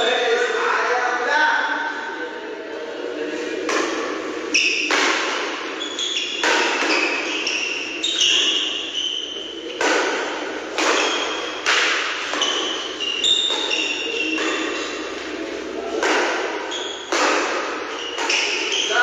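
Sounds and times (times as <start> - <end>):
racket hitting shuttlecock: 3.6 - 18.9
sneakers squeaking on court: 3.9 - 15.2, 16.2 - 19.0.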